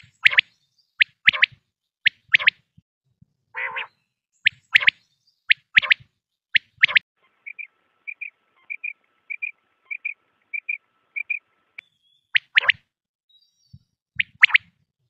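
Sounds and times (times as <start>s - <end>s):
quail calling: 3.6s - 6.0s, 6.6s - 11.4s.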